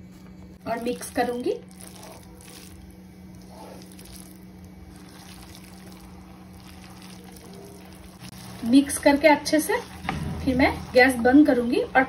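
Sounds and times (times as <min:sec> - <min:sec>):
constant low hum: 0:00.0 - 0:12.0
food simmering in pan: 0:00.8 - 0:12.0.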